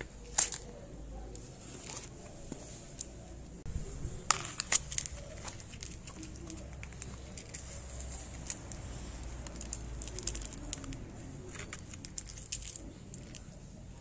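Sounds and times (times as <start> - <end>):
cat crunching dry food: 4.3 - 13.6.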